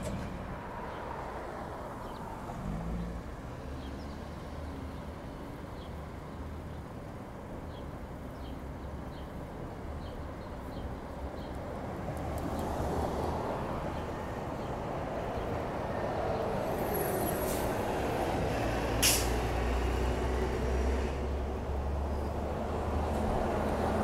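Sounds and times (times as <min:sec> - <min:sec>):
bus engine and tyre noise: 0:00.0 - 0:24.0
bus engine rumble: 0:00.0 - 0:24.0
air brake hiss: 0:16.9 - 0:17.8, 0:19.0 - 0:19.4.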